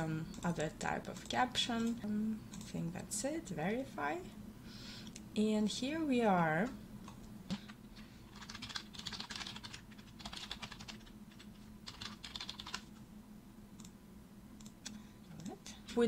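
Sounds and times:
typing on computer keyboard: 8.3 - 12.9.

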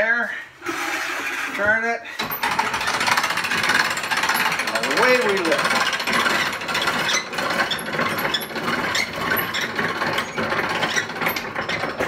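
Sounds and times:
hand winch ratcheting clicks: 2.2 - 8.4.

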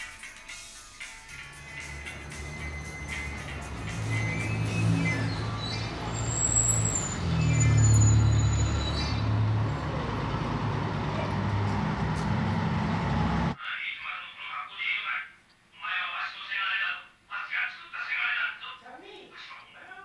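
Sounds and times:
heavy vehicle engine rumbling: 1.3 - 13.6
traffic noise: 1.3 - 13.6
brief high squeals: 2.0 - 9.3.

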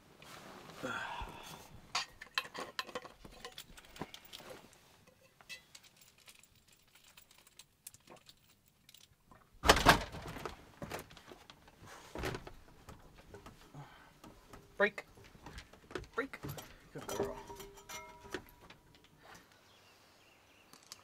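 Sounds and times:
light clicks and knocks: 10.4 - 19.2.

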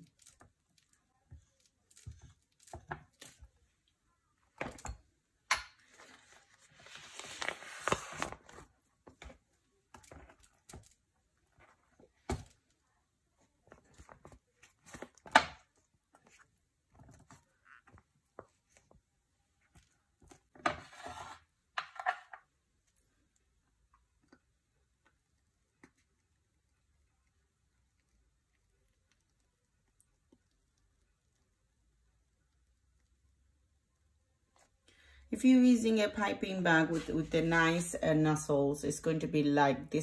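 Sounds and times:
rustling of piping bag: 5.8 - 12.4.

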